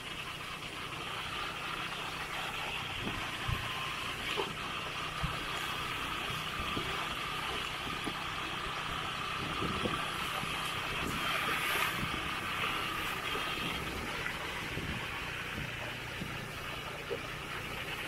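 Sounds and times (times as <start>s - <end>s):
vehicle engine running: 0.0s - 18.0s.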